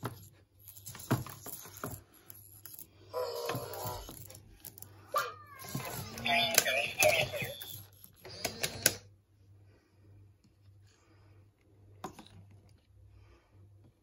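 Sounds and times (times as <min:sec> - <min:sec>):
toy robot mechanical clicks: 0:06.0 - 0:09.0.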